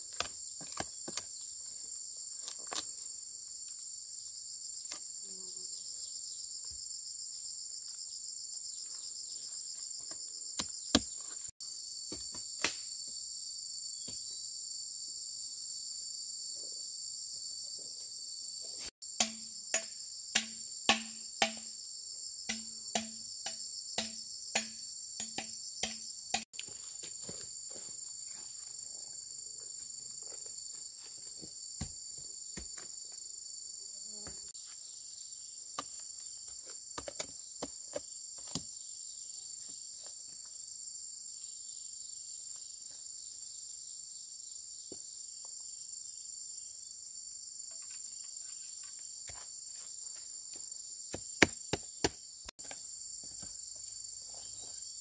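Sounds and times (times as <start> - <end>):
insects chorus: 0.0 - 55.0
ringing strikes: 19.2 - 21.7, 22.5 - 23.3
sharp knocks: 19.2 - 21.7, 24.0 - 26.0.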